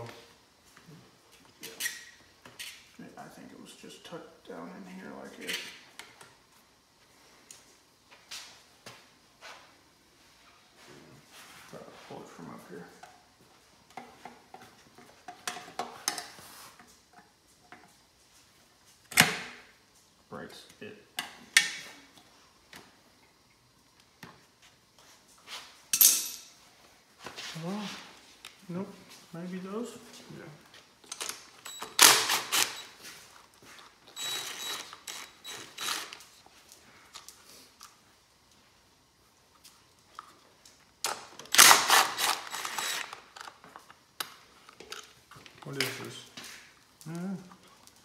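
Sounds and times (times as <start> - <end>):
cordless drill spinning socket: 34.2 - 36.2, 41.5 - 43.5.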